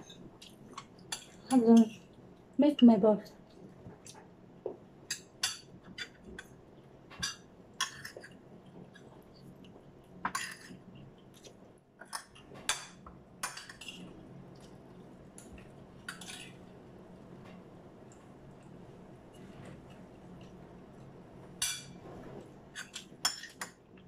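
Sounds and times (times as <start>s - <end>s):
cutlery and dishes clinking: 22.8s - 23.8s.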